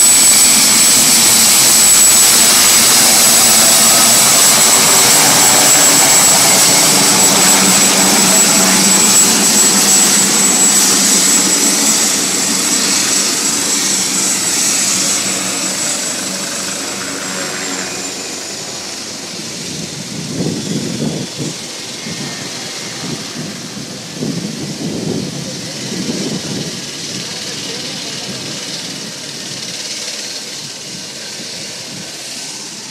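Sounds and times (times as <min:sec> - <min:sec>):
low rumbles: 0:00.0 - 0:18.9
helicopter rotor noise: 0:00.0 - 0:32.9
helicopter turbine whine: 0:00.0 - 0:32.9.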